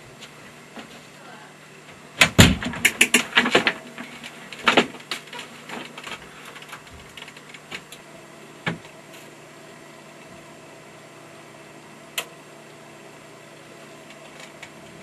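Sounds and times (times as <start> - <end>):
faint steady hum: 0.0 - 15.0
keyboard and mouse clicks: 2.8 - 3.3.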